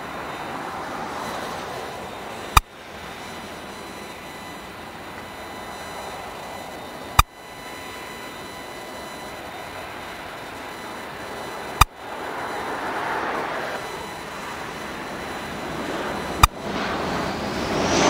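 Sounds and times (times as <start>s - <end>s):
jet engines idling: 0.0s - 18.0s
sharp click: 2.5s - 2.7s, 11.7s - 12.0s.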